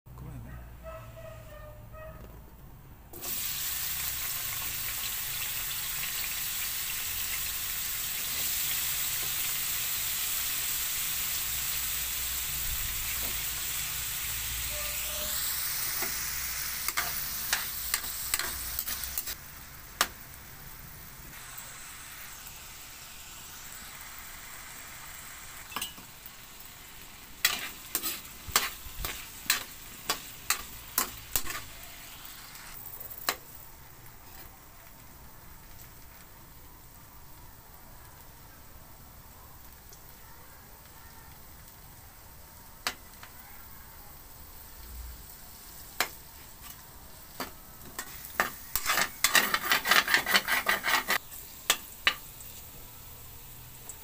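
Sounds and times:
potatoes sizzling in oil: 0:03.2 - 0:54.0
metal spatula scraping wok: 0:12.8 - 0:19.4, 0:25.6 - 0:26.1, 0:27.4 - 0:33.4, 0:46.0 - 0:52.2.

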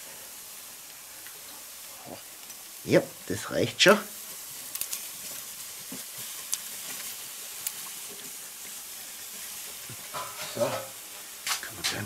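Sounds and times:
meat sizzling on a grill: 0:00.0 - 0:12.0.

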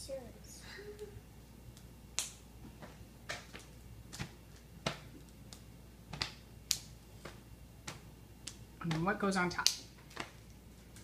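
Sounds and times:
brittle chocolate clicks and crackles: 0:03.3 - 0:11.0.

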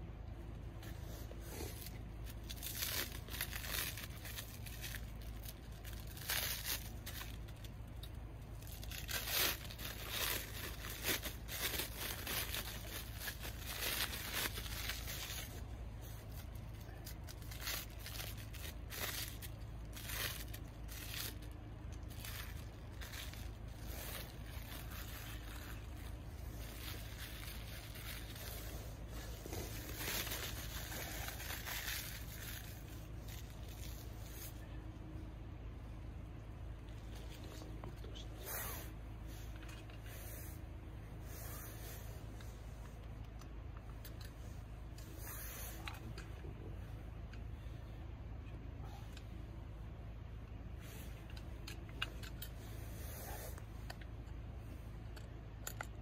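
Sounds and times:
cling film crinkling and tearing: 0:01.0 - 0:34.7.

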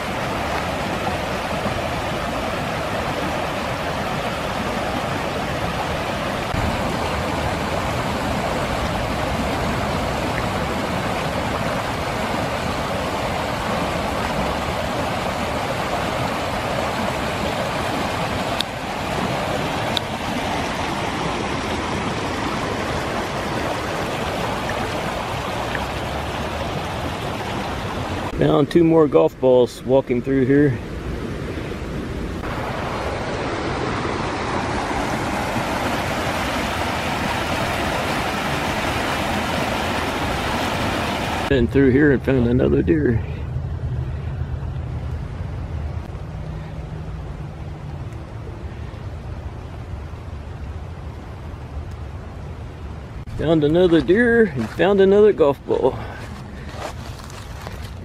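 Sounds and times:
creek rushing over rocks: 0:00.0 - 0:43.4, 0:45.7 - 0:58.0.

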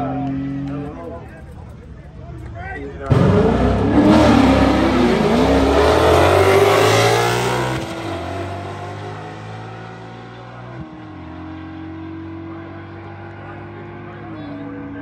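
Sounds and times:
drag racing cars accelerating: 0:03.0 - 0:15.0.

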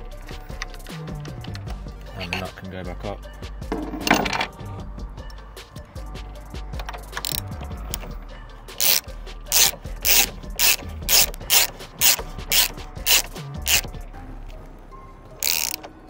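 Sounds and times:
ratchet wrench ratcheting: 0:06.8 - 0:08.1, 0:08.8 - 0:13.9, 0:15.4 - 0:15.9.

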